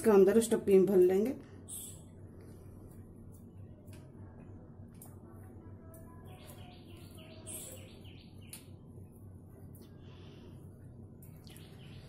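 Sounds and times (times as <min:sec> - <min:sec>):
faint bird chirping: 0:01.6 - 0:02.3, 0:05.4 - 0:12.0.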